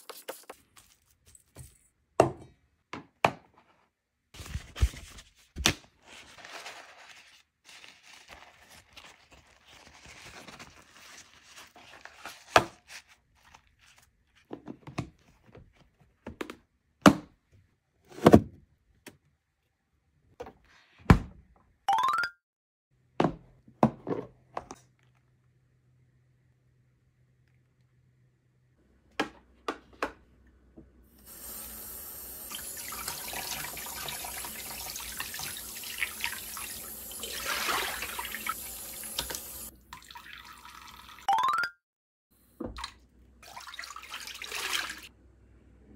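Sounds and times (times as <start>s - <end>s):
kitchen paper rustling: 0.0s - 2.0s, 4.3s - 14.5s.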